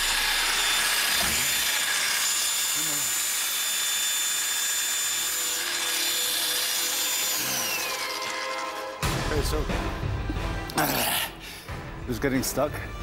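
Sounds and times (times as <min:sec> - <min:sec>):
demolition hammer motor whining: 0:00.0 - 0:09.3.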